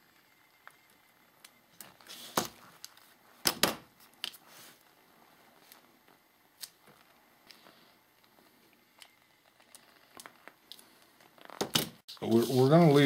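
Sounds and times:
faint rustling of gloves: 12.2 - 13.0.

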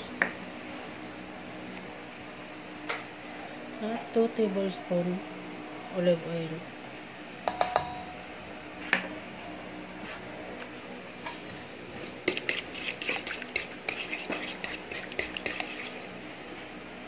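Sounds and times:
metal spoon clinking in steel bowl: 7.5 - 8.1.

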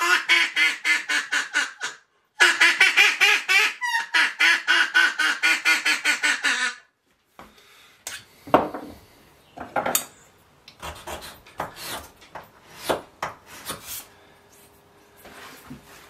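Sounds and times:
duck call quacks: 0.0 - 6.9
file scraping wood: 10.8 - 14.1.

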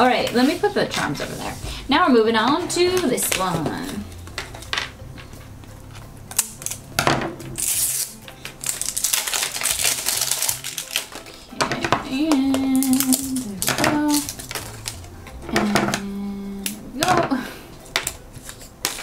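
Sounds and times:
plastic wrap crinkling: 7.5 - 15.1
woman humming: 11.6 - 14.4, 15.4 - 17.6.

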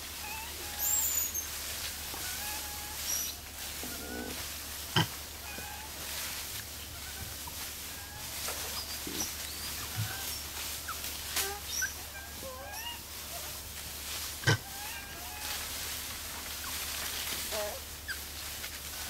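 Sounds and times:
animal chirping and squeaking: 0.2 - 1.6, 2.2 - 4.4, 5.0 - 5.9, 8.0 - 13.6, 14.5 - 15.6, 17.5 - 18.3.

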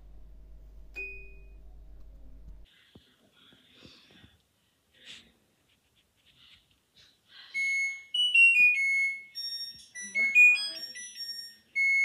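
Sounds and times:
washing machine electronic beeps: 1.0 - 1.6, 7.6 - 12.0.

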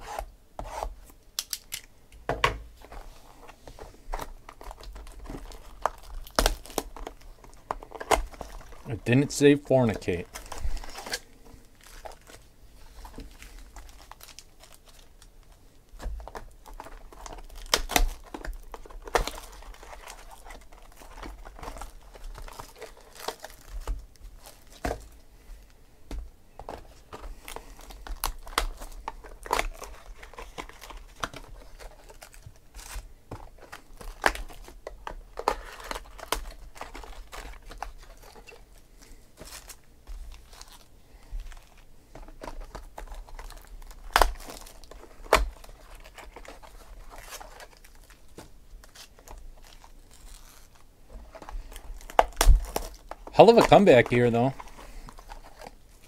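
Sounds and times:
shrink-wrap crinkling and tearing: 1.4 - 1.9, 2.8 - 25.7, 26.7 - 56.0
card packs rustling and tapping: 2.3 - 56.0.

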